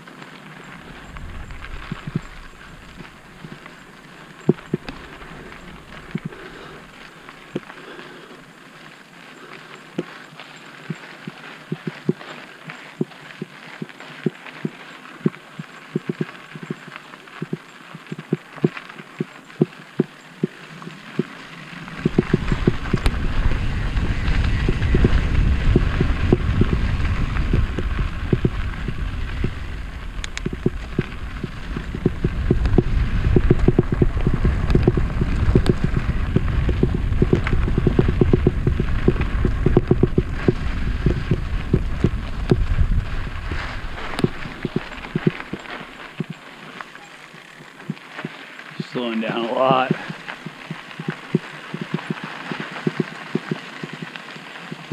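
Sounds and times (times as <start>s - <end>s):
bike rattling over bumps: 0.0s - 54.9s
wind rumble on microphone: 0.6s - 7.7s, 20.4s - 46.4s.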